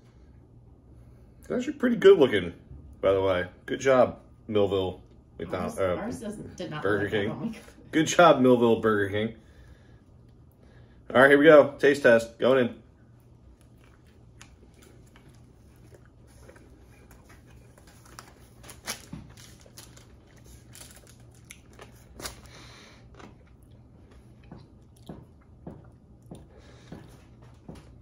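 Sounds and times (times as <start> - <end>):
man chewing food: 9.5 - 11.1, 12.9 - 28.0.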